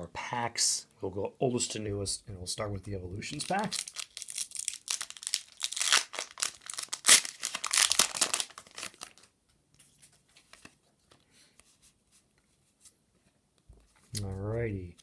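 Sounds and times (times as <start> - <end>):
foil wrapper crinkling: 3.4 - 9.3.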